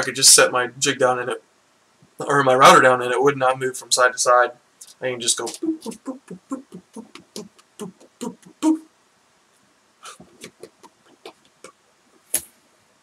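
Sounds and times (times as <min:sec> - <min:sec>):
faint mouth noises: 0:04.8 - 0:08.9, 0:10.0 - 0:12.6
man making boop sounds: 0:05.4 - 0:08.9, 0:10.1 - 0:11.8.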